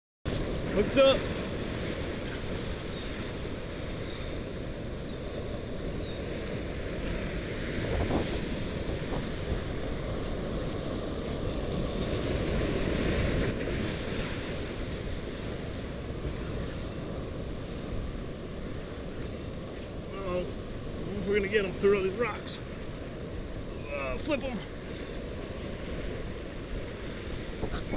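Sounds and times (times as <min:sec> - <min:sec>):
surf breaking against rocks: 0:00.3 - 0:04.3
wind buffeting microphone: 0:00.3 - 0:21.9, 0:22.6 - 0:27.9.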